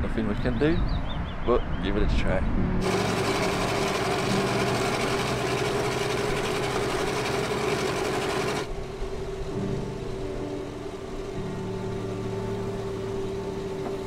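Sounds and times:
churning propeller wash: 0:02.8 - 0:14.0
outboard motors running: 0:02.8 - 0:14.0.

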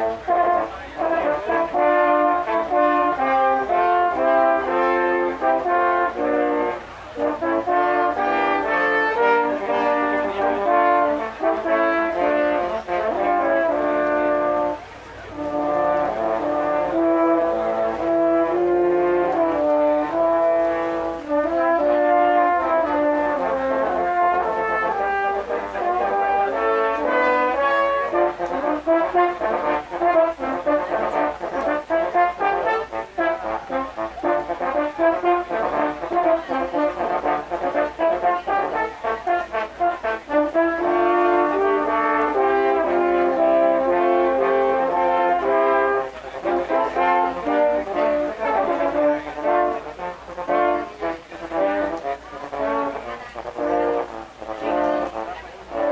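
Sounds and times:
french horn quartet playing: 0:00.0 - 0:55.9.

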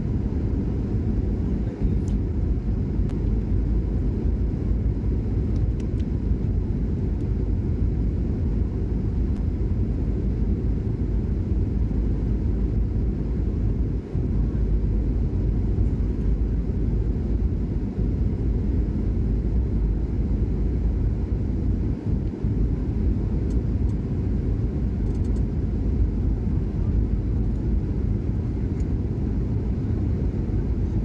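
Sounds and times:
jet engine rumble in cabin: 0:00.0 - 0:31.0.

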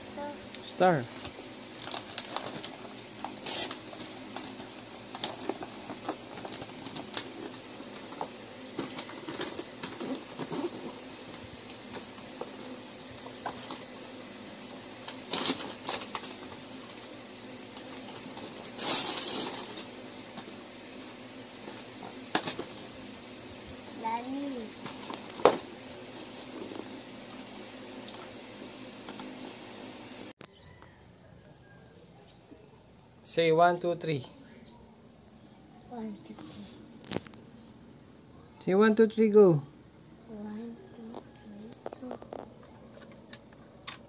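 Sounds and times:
wrapping paper rustling and tearing: 0:01.7 - 0:10.8, 0:15.0 - 0:16.4, 0:17.8 - 0:20.0.

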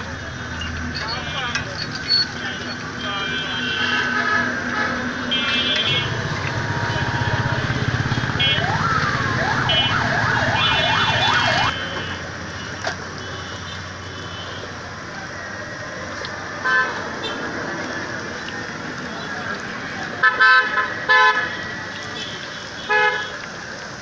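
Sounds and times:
street traffic: 0:00.0 - 0:24.0
vehicle horn beeps: 0:02.2 - 0:08.6, 0:11.7 - 0:14.7
siren-like warbling wail: 0:06.0 - 0:11.8.

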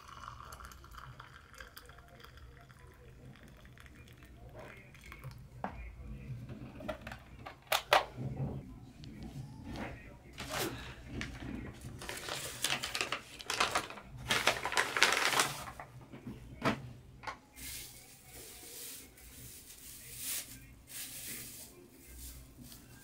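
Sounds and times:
paper and plastic crinkling: 0:10.4 - 0:16.1, 0:17.6 - 0:23.0.

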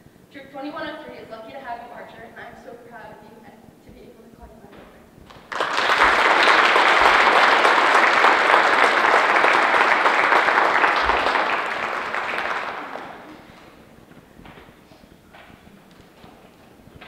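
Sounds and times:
audience applauding: 0:05.3 - 0:13.9.

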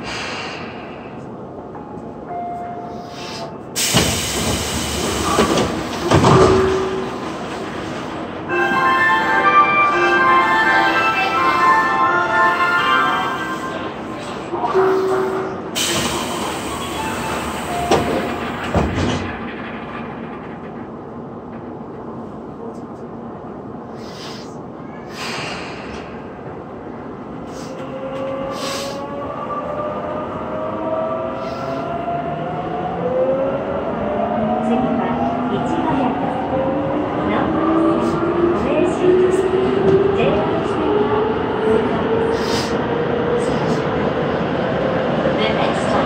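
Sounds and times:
train doors sliding open: 0:00.0 - 0:26.8, 0:27.4 - 0:29.2
train doors closing knocks: 0:03.8 - 0:07.2, 0:17.8 - 0:19.5.

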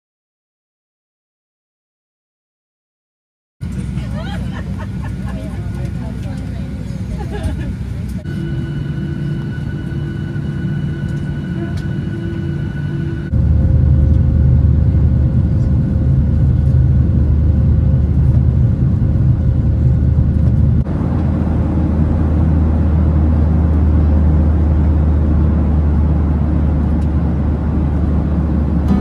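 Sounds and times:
moving vehicle rumble: 0:03.6 - 0:29.0.

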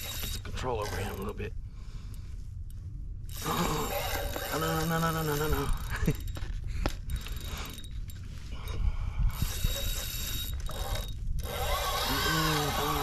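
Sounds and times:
fishing reel drag clicking: 0:09.4 - 0:13.0.

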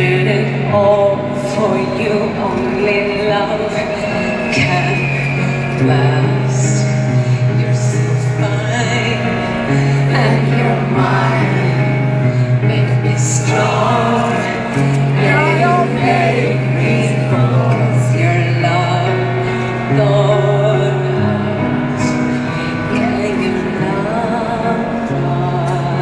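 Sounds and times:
piano: 0:00.0 - 0:26.0
woman singing slow song: 0:00.0 - 0:26.0
long low notes: 0:10.0 - 0:19.4.

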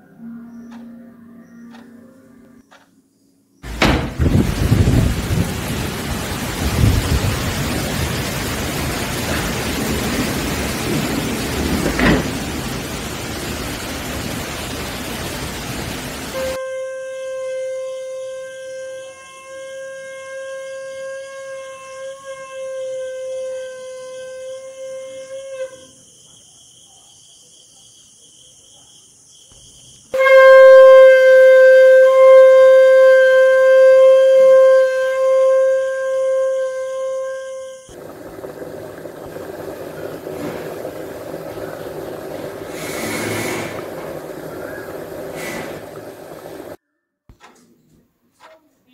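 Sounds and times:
steady hiss: 0:03.6 - 0:16.6, 0:37.9 - 0:46.8
long horn-like note: 0:16.3 - 0:26.0, 0:30.2 - 0:38.1.

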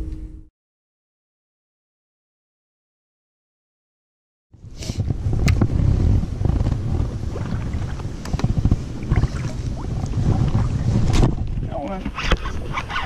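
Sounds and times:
wind buffeting microphone: 0:04.6 - 0:13.0.

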